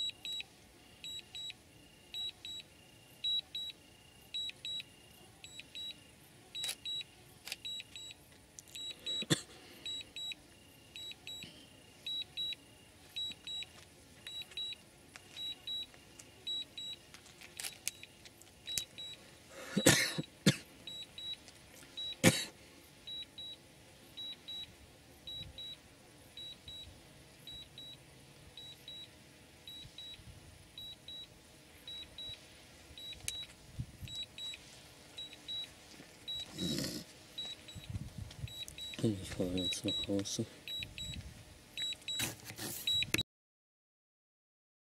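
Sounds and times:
electronic double beeps: 38.5 - 41.2.

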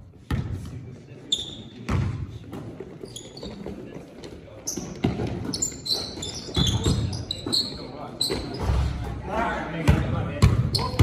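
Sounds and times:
sneakers squeaking on floor: 0.2 - 9.2, 9.9 - 11.0
players' voices: 0.4 - 11.0
basketball bouncing on hardwood floor: 9.9 - 11.0.

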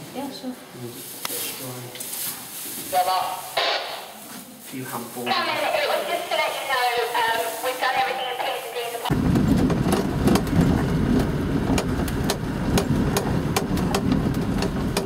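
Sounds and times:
vehicle engine rumble: 9.1 - 15.0
cabin rattles and knocks: 9.2 - 15.0.

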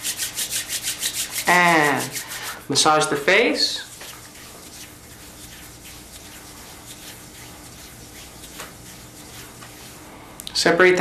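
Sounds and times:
hands rubbing face: 0.0 - 2.7, 3.7 - 10.5
room hiss: 0.0 - 11.0.

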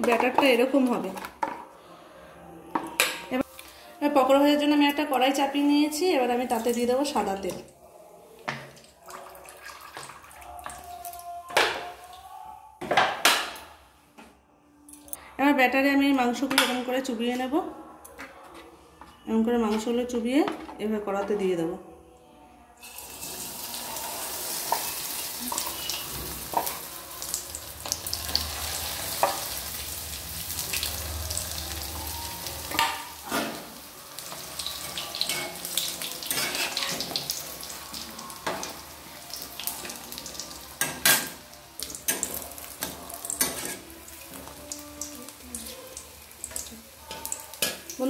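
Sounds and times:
food deep-frying in hot oil: 22.8 - 48.0
metal spatula stirring in oil: 34.2 - 37.8.

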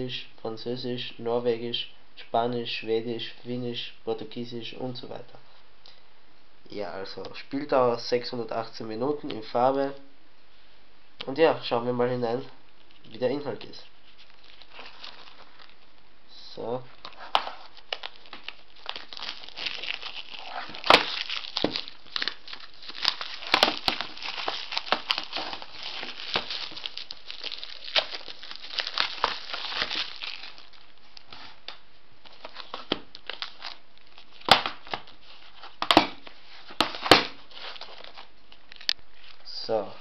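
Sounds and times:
plastic wrap crinkling: 12.7 - 16.0, 16.9 - 39.5
plastic wrap tearing: 14.0 - 15.9, 17.0 - 39.4.

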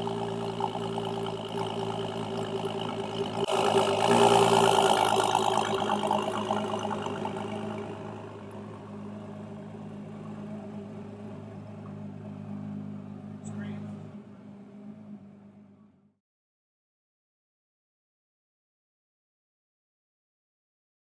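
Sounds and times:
car engine idling: 0.0 - 16.1.

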